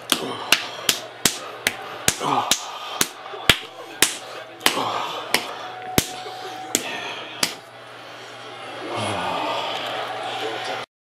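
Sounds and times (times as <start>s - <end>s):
hand slapping bare chest: 0.0s - 7.6s.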